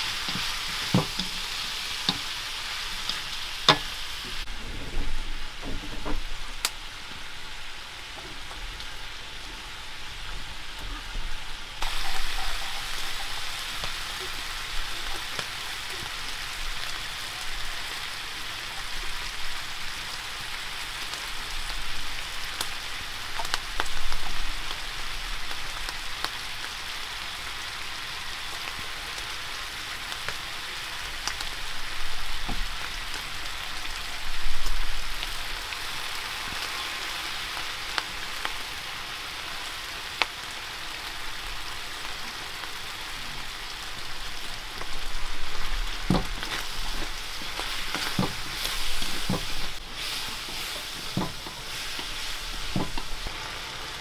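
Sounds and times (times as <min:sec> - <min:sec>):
pork sizzling in a wok: 0:00.0 - 0:54.0
small pops and crackles: 0:23.3 - 0:24.8.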